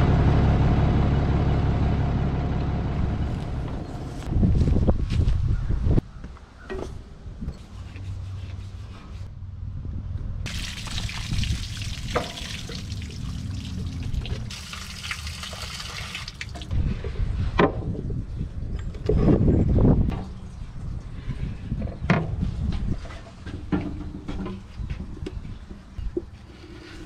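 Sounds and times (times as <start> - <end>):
low rumble: 0.0 - 5.1, 9.3 - 14.6
water splashing onto gravel: 10.5 - 16.7.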